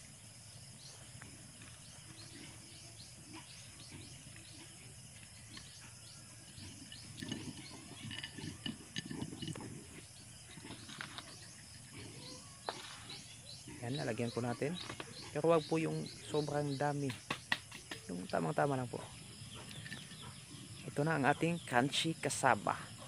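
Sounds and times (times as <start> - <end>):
small animal chirping: 2.0 - 16.4
rustling and clatter of sugar bowl: 4.6 - 13.3.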